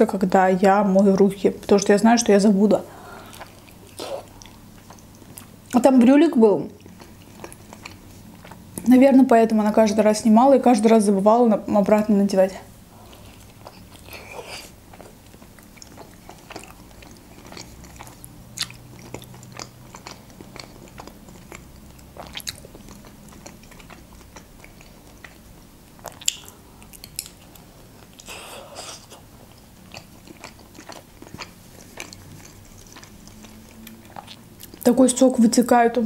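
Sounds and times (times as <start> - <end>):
wet chewing mouth clicks: 26.0 - 27.6, 28.2 - 34.9.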